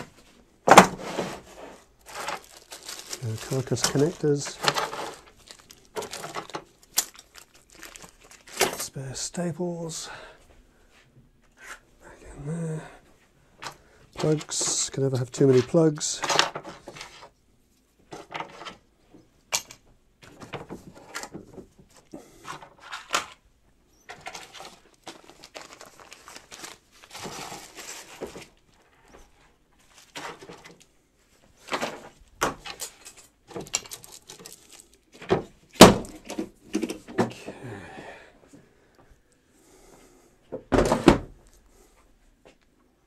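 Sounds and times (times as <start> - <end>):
plastic bags crinkling: 1.4 - 9.0, 24.1 - 30.8, 31.6 - 36.4.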